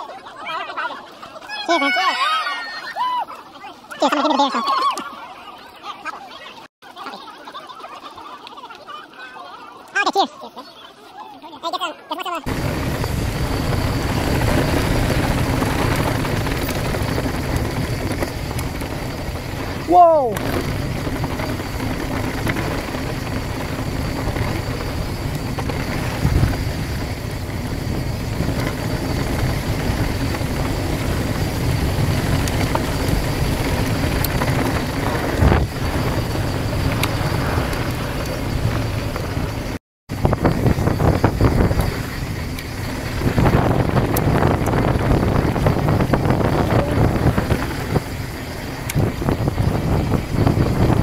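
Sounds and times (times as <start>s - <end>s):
bike rattling over bumps: 12.5s - 51.0s
wind rushing over microphone: 12.5s - 51.0s.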